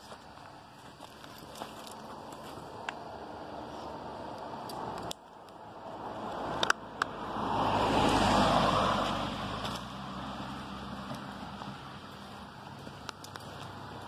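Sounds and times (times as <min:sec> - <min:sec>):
vehicle passing by: 0:01.6 - 0:14.0
sharp clicks: 0:04.3 - 0:05.6.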